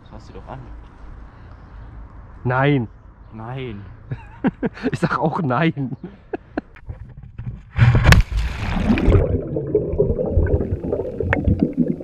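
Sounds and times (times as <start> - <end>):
splash into water: 7.9 - 12.0
underwater bubbling and gurgling: 8.0 - 12.0.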